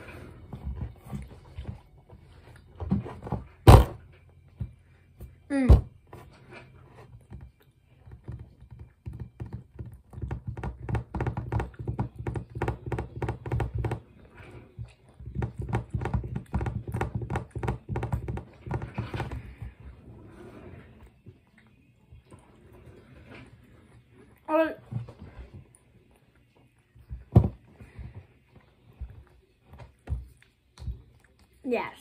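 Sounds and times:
fingers drumming on tabletop: 8.1 - 14.1, 15.2 - 19.4.

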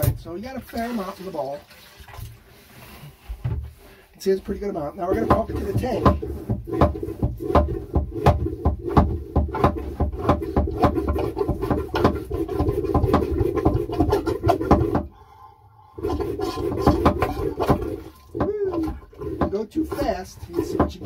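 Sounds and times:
water sloshing and gurgling: 0.0 - 21.0
toilet hand pump clacking: 5.0 - 15.1, 16.0 - 21.0.

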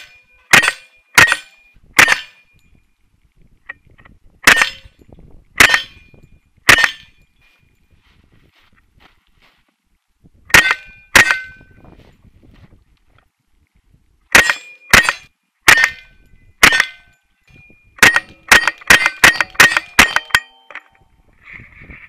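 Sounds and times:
rifle shots: 0.0 - 2.4, 4.4 - 4.8, 5.6 - 6.0, 6.7 - 7.1, 14.3 - 17.0, 18.0 - 20.5
short ringing tone: 20.2 - 21.3.

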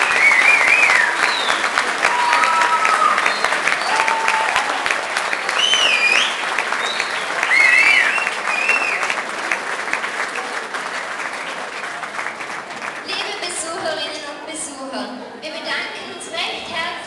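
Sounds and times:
high-pitched cheers: 0.0 - 9.2
audience applause: 0.0 - 14.0.

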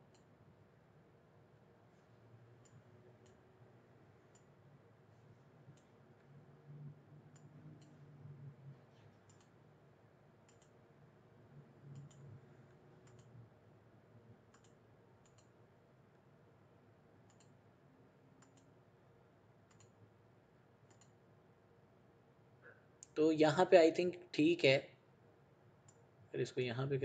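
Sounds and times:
faint low hum: 0.0 - 27.0
computer mouse clicks: 2.6 - 3.4, 4.3 - 4.6, 7.3 - 8.0, 8.9 - 9.6, 10.4 - 10.8, 11.9 - 13.4, 14.5 - 15.6, 17.2 - 17.6, 18.4 - 18.7, 19.6 - 20.0, 20.8 - 21.2.

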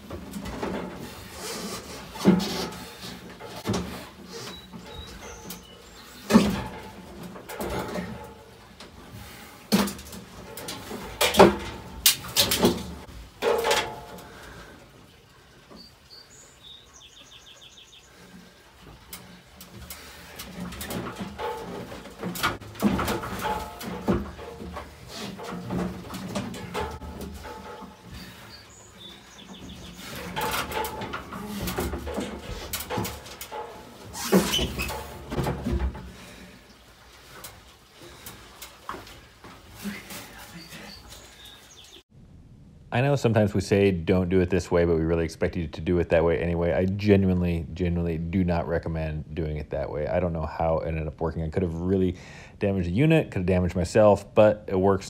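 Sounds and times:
heavy metal clunks and scraping: 0.0 - 14.6, 18.3 - 36.6.

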